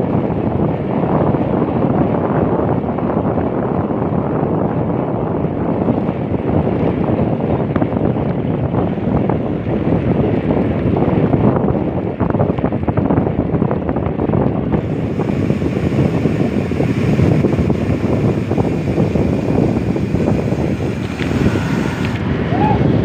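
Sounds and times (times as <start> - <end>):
wind buffeting microphone: 0.0 - 23.0
road and vehicle noise: 14.1 - 23.0.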